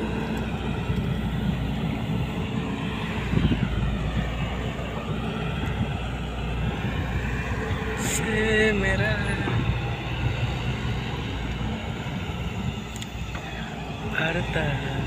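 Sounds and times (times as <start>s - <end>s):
excavator diesel engine running: 0.0s - 15.0s.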